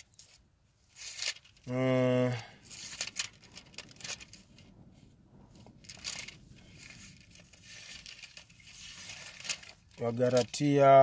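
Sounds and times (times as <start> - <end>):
thin pages rustling: 0.0 - 1.6, 2.6 - 10.6.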